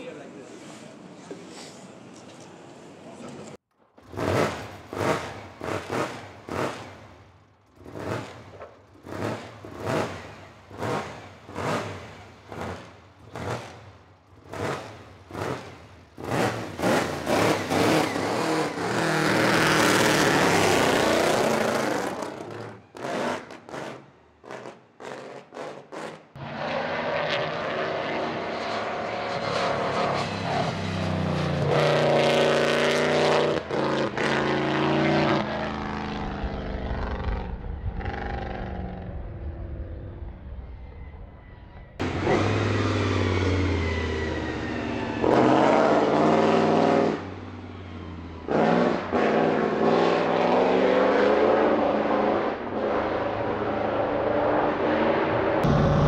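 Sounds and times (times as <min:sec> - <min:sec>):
racing car engine revving: 0:07.7 - 0:39.1, 0:45.2 - 0:47.3, 0:48.5 - 0:56.0.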